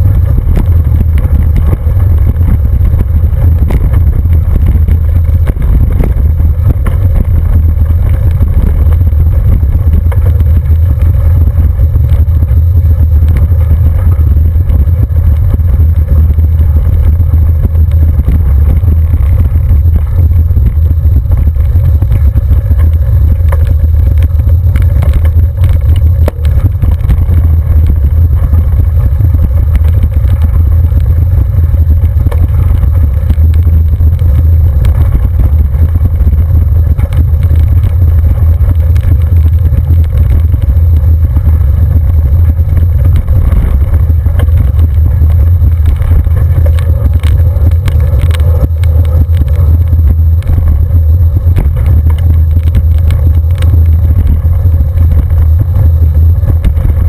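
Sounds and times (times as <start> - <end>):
wind and road rumble: 0.0 - 57.0.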